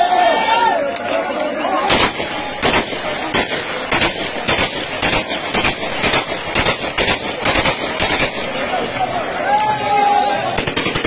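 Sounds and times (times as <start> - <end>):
rapid gunshots: 1.8 - 9.1, 10.4 - 11.0.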